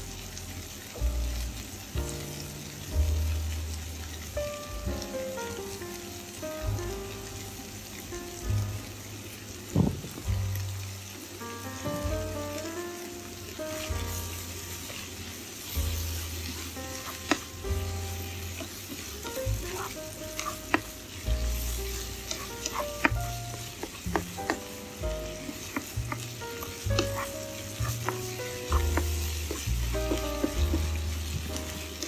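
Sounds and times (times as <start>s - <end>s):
food sizzling in a frying pan: 0.0s - 32.0s
soft background music: 0.0s - 32.0s
spatula scraping a pan: 13.9s - 32.0s
spatula clicking against pan: 22.3s - 30.8s.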